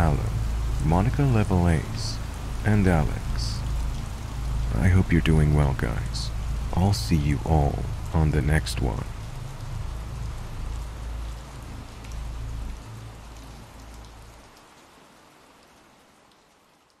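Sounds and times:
low rumble: 0.0s - 12.8s
rain hissing: 0.0s - 15.6s.

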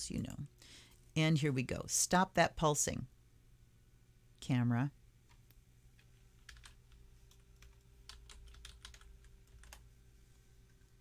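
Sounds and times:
typing on computer keyboard: 6.0s - 9.8s.

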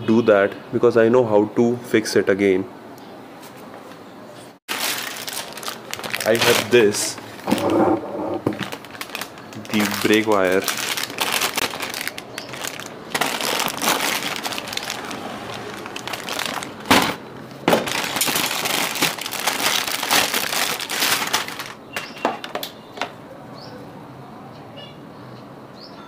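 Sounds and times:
plastic packaging crinkling: 4.7s - 22.7s.

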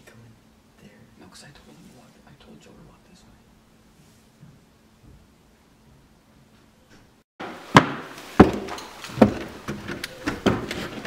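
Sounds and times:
boot footsteps on wooden floor: 7.7s - 11.0s.

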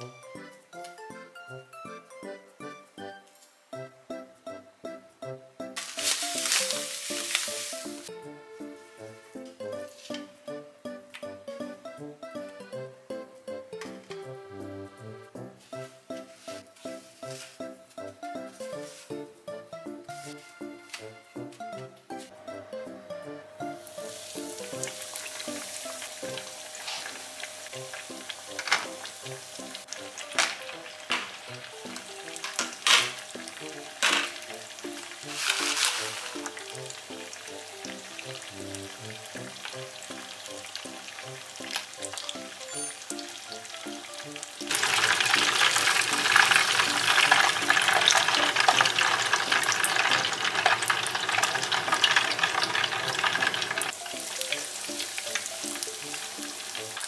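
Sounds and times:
soft background music: 0.0s - 57.0s
deep-frying oil sizzle: 5.8s - 8.1s, 23.6s - 57.0s.

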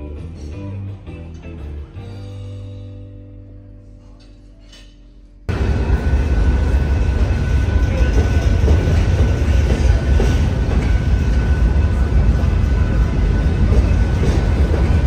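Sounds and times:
train wheels rumbling on rails: 5.5s - 15.0s.

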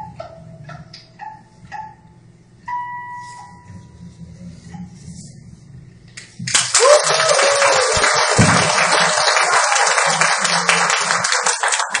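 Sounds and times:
small audience applauding: 6.5s - 12.0s.

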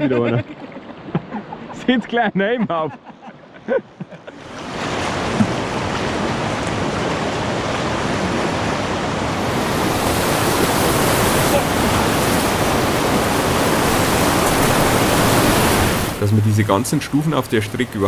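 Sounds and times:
whitewater rushing: 4.4s - 18.0s.

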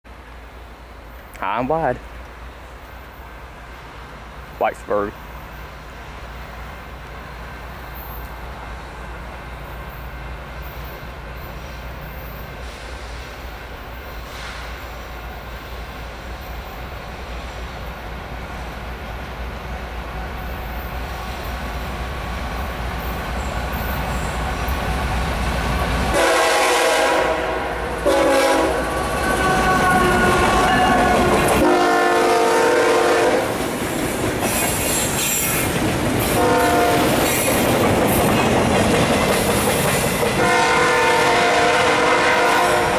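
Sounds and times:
diesel locomotive rumble: 0.2s - 42.9s
multi-note train horn blasts: 26.1s - 33.5s, 36.4s - 37.2s, 40.4s - 42.9s.

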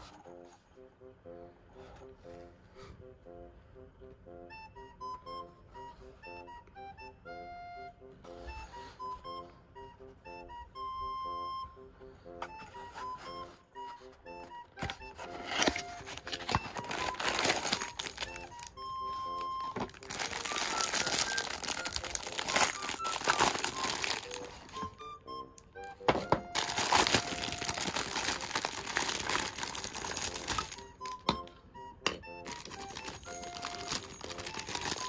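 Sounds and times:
light background music: 0.0s - 35.0s
plastic packaging crinkling: 14.8s - 25.0s, 26.1s - 31.2s, 32.4s - 35.0s.

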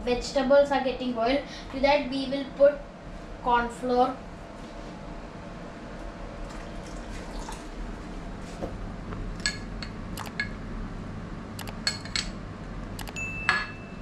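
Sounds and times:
spoon clinking on metal: 13.2s - 13.9s.

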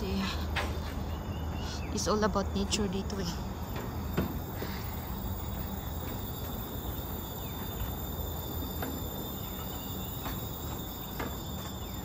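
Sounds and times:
insects droning: 0.0s - 12.0s
faint footsteps: 3.3s - 12.0s.

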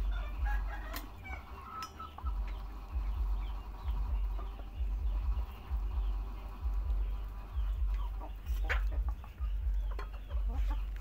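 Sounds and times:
chickens clucking: 0.0s - 11.0s
chirping calls: 0.0s - 11.0s
low rumble: 2.2s - 11.0s.

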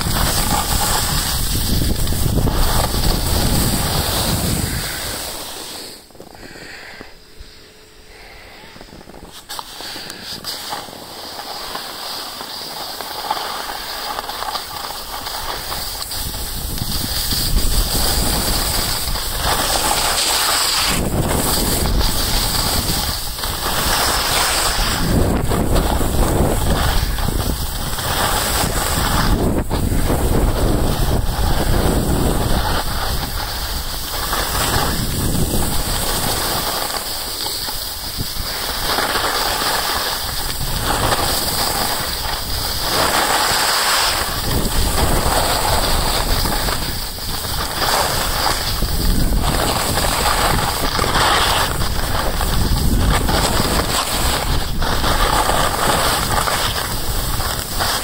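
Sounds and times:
wind noise on microphone: 0.0s - 5.5s, 14.8s - 58.0s
skis sliding on snow: 0.0s - 7.0s, 7.6s - 58.0s.

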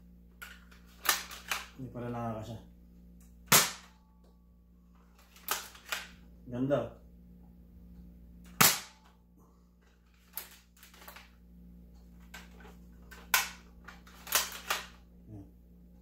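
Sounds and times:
toy blaster plastic clacks and pops: 13.2s - 15.0s.

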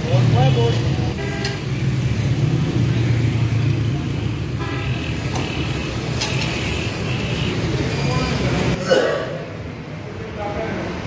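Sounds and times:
vehicle horn toots: 1.1s - 1.7s.

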